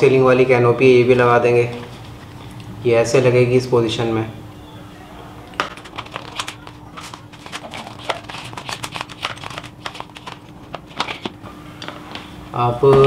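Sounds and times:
faint steady hum: 0.0 - 13.0
plastic parts rustling: 5.6 - 11.4.

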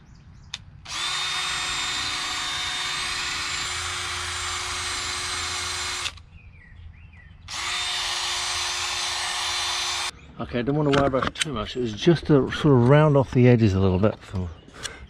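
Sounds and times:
wire brush power tool on metal: 0.9 - 6.2, 7.5 - 10.1.

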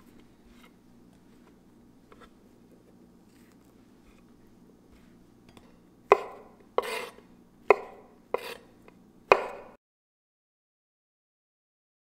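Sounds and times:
knife slicing on wooden board: 6.1 - 8.7, 9.3 - 9.7.

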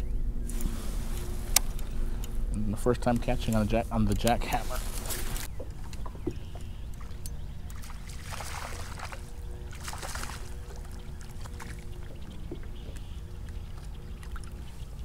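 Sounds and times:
steady low rumble: 0.0 - 15.0
water splashing against a kayak: 4.6 - 15.0.

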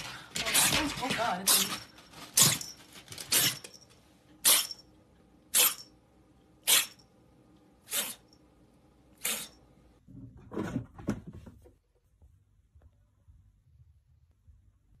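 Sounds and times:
cat sneezing: 4.4 - 4.7, 6.6 - 7.0, 7.8 - 8.3, 9.2 - 9.6.

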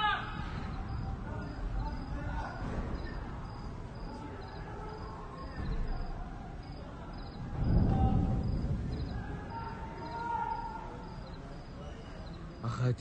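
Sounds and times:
crickets chirping: 0.0 - 13.0
low rumble: 7.2 - 9.6.

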